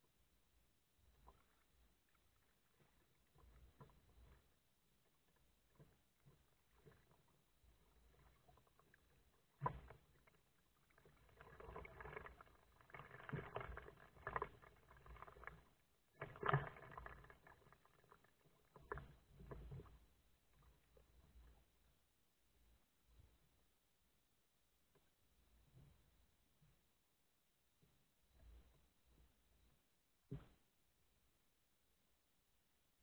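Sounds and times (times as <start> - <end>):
paddle swishing and splashing water: 1.0 - 21.2.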